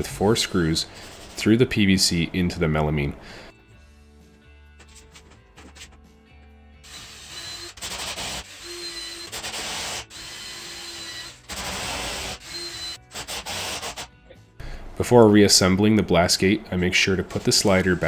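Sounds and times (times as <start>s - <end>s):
drill motor whine: 6.8s - 13.0s
screws grinding into plastic: 6.8s - 14.1s.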